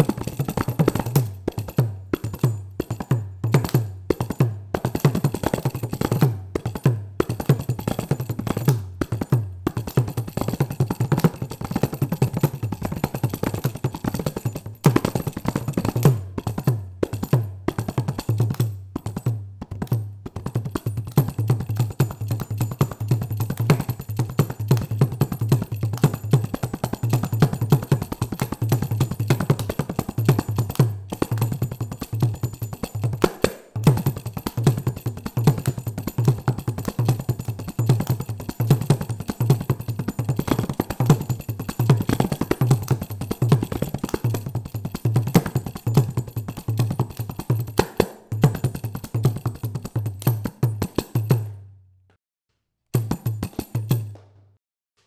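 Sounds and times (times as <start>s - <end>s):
frame drum with jingles: 0.0s - 51.6s, 53.0s - 54.6s.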